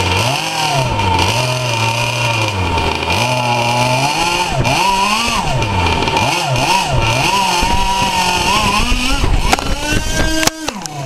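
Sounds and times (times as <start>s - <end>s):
model engine whining: 0.0s - 11.0s.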